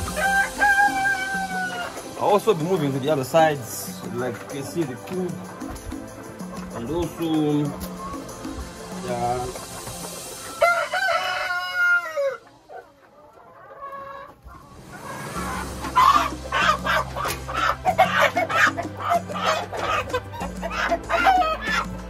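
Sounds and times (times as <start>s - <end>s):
rooster crowing: 0.0s - 2.0s, 10.6s - 12.5s
chickens clucking and squawking: 0.0s - 22.0s.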